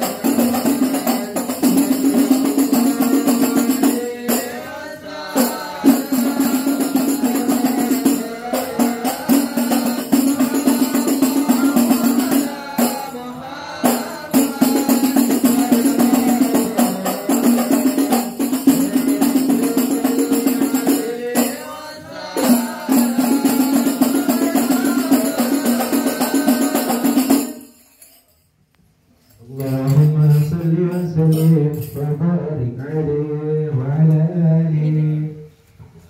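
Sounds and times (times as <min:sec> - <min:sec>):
hand-beaten frame drum: 0:00.0 - 0:04.6, 0:05.4 - 0:13.1, 0:13.9 - 0:27.6
voices singing devotional song: 0:00.0 - 0:27.8.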